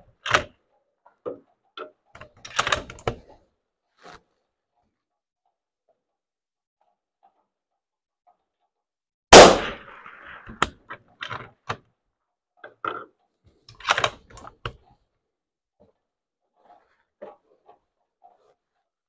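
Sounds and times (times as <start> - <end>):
rifle shot: 9.3 - 10.4.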